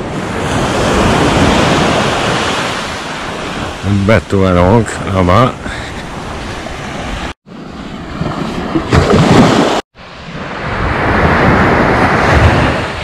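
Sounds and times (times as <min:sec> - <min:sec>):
waves washing up a sandy beach: 0:00.0 - 0:04.0
wind gusting on microphone: 0:05.9 - 0:13.0.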